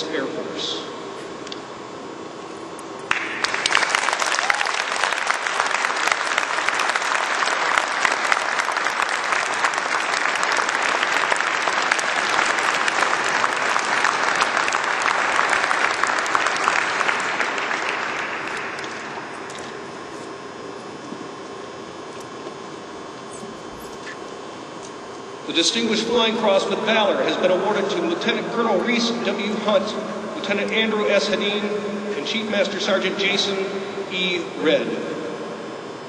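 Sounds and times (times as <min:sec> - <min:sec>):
audience applauding: 0:03.0 - 0:19.8.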